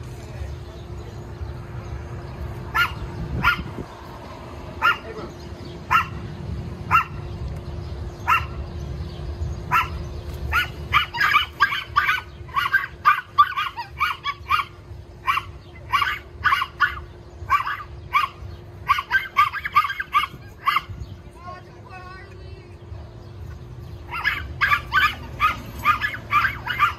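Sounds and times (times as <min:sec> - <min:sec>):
dogs barking: 0:02.6 - 0:04.0, 0:04.7 - 0:07.3, 0:08.1 - 0:08.8, 0:09.5 - 0:21.2, 0:23.9 - 0:26.9.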